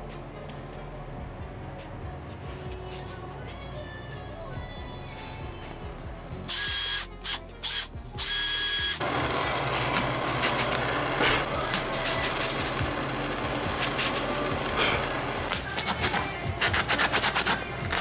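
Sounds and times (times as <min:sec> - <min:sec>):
power drill boring into rubber: 0:06.5 - 0:18.0.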